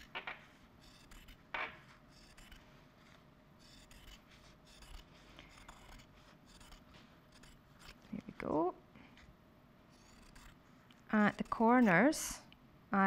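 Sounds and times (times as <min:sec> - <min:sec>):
scissors snipping fabric: 0:03.7 - 0:08.0, 0:10.0 - 0:12.4.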